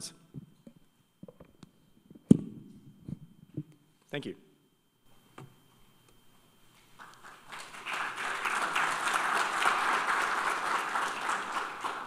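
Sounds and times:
audience applauding: 7.0s - 12.0s.

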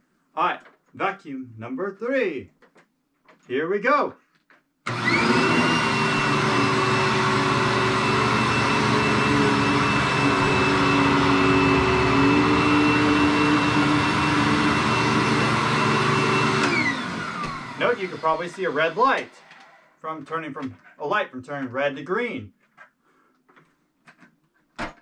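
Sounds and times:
vacuum cleaner motor whine: 4.9s - 19.9s.

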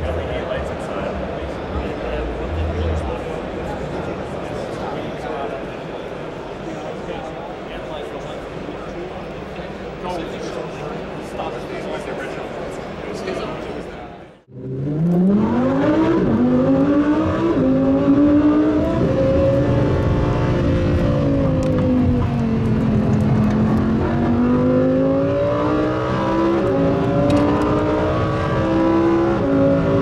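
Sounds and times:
car engine accelerating: 14.5s - 30.0s.

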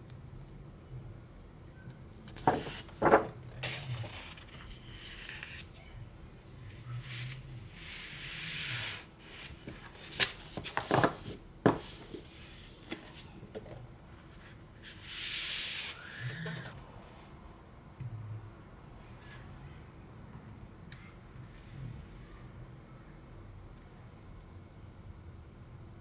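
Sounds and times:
paper rustling and sliding: 2.3s - 5.7s, 7.0s - 13.2s.

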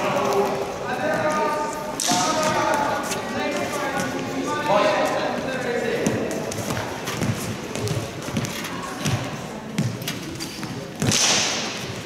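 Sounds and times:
footsteps thudding on hall floor: 6.0s - 10.0s.

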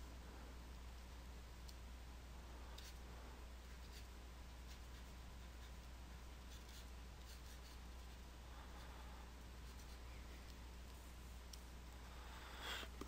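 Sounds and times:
low electrical hum: 0.0s - 13.0s
stylus scratching on tablet: 3.6s - 8.2s, 9.6s - 10.6s.

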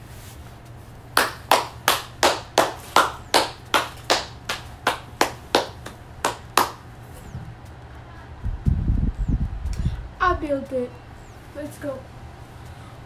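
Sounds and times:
person clapping hands: 1.2s - 6.8s.

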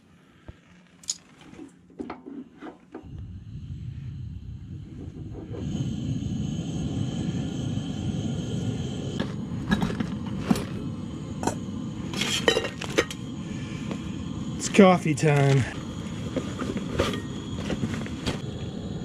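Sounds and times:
camp stove burner rumbling: 0.0s - 19.0s.

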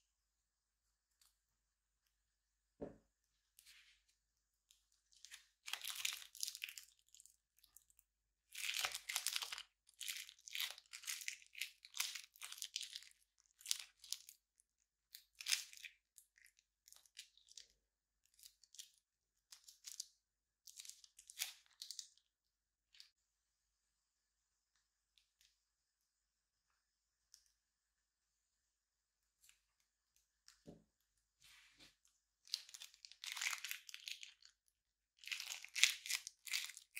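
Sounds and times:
slime crackling and squelching: 4.7s - 22.3s, 32.4s - 36.9s.

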